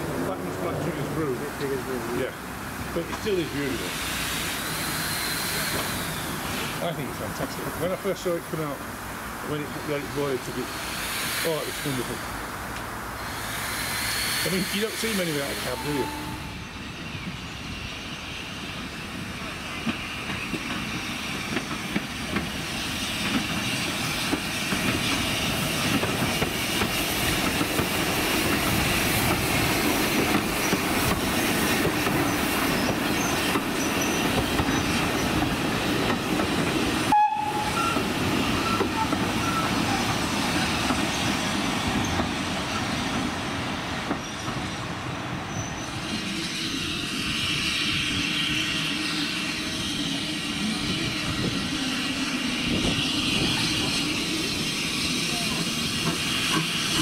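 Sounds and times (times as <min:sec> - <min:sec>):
steam locomotive exhaust: 0:00.0 - 0:57.0
wheels squealing: 0:32.1 - 0:36.0, 0:37.1 - 0:42.9, 0:45.4 - 0:57.0.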